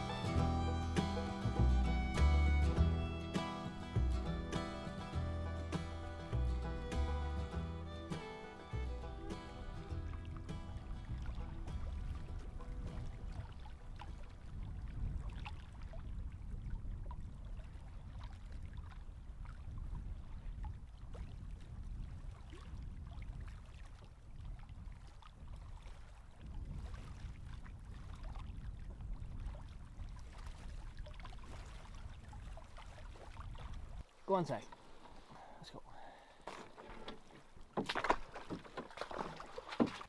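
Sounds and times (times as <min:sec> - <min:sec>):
wind rumble on microphone: 0:08.7 - 0:34.1
small waves lapping on rock: 0:20.4 - 0:35.5, 0:36.3 - 0:40.0.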